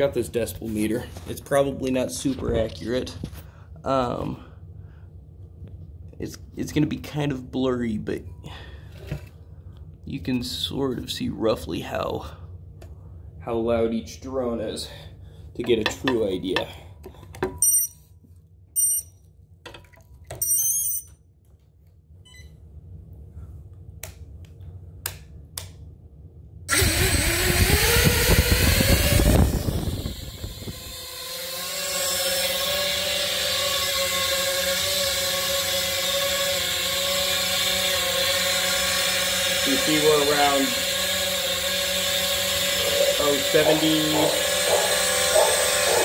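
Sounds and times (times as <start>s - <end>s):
short electronic beeps: 18.8s - 19.2s
quadcopter propellers buzzing: 26.7s - 46.0s.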